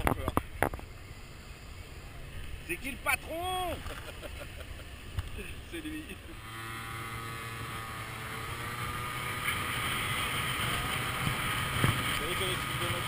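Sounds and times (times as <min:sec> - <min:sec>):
scooter engine whine: 0:06.1 - 0:13.0.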